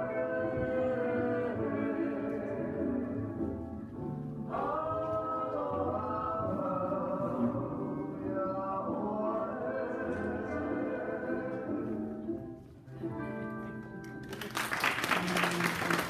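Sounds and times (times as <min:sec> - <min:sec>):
group singing with music: 0:00.0 - 0:03.7, 0:04.4 - 0:12.5
audience applause: 0:14.2 - 0:16.0.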